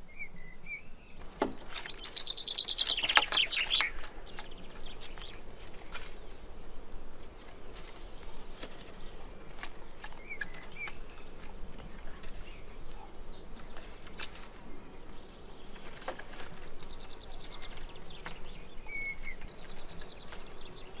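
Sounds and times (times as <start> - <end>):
bird chirps: 0.0 - 6.5, 8.0 - 21.0
small clicks: 1.2 - 6.3, 7.2 - 13.0, 15.7 - 21.0.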